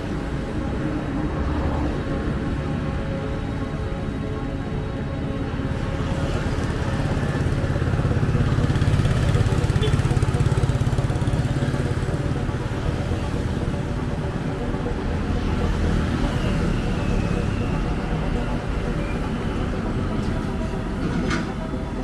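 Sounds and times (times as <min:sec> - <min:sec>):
traffic rumble: 0:00.0 - 0:22.0
vehicle engine running: 0:05.4 - 0:22.0.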